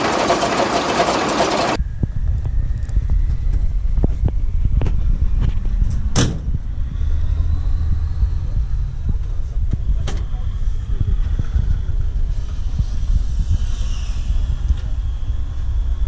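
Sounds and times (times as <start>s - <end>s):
truck engine running: 0.0s - 1.8s
low rumble: 1.7s - 16.0s.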